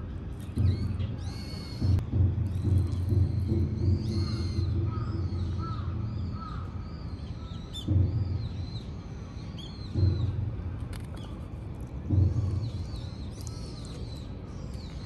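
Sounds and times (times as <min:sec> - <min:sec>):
dull low thumps: 0:00.5 - 0:06.3
crows cawing: 0:04.2 - 0:06.8.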